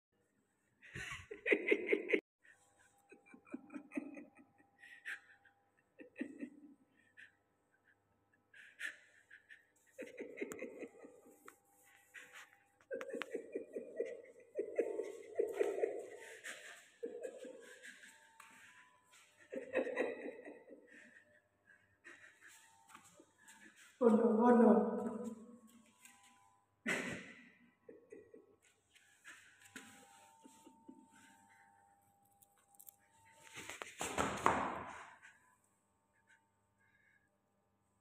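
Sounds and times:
person laughing: 0.9s - 2.2s, 2.9s - 7.4s, 8.6s - 21.4s, 26.9s - 28.5s, 29.3s - 31.4s.

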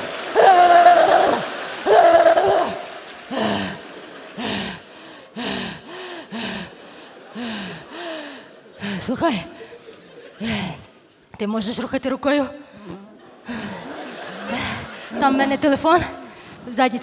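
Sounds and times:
woman wailing cry: 0.4s - 2.8s.

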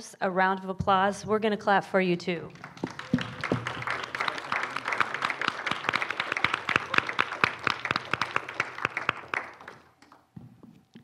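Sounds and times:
audience applauding: 2.6s - 10.3s.

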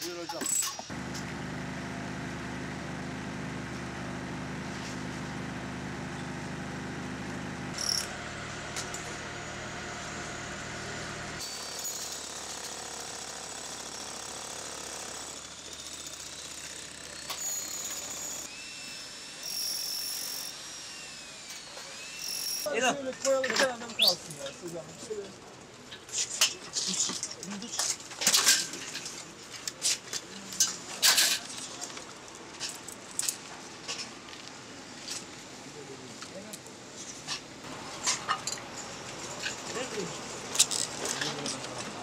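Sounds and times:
machinery hum: 0.9s - 11.4s.

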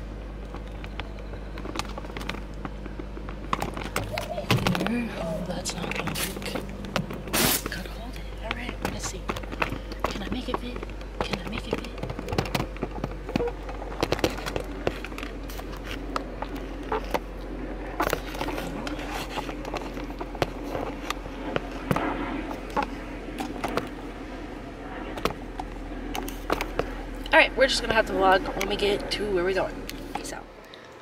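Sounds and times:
objects rustling and clicking: 0.4s - 24.0s.

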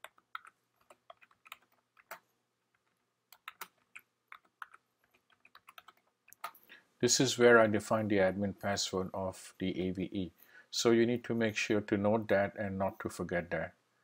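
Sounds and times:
keystrokes on computer keyboard: 0.0s - 6.6s.

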